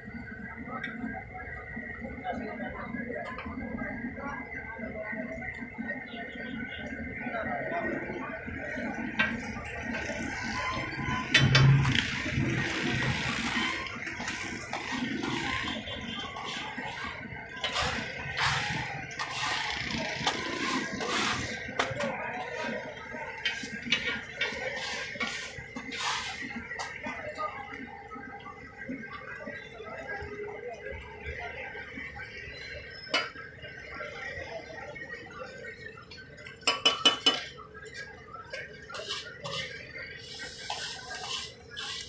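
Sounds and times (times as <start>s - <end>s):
spatula scraping pan: 17.7s - 19.6s, 39.0s - 42.0s
hot oil sizzling: 39.0s - 42.0s.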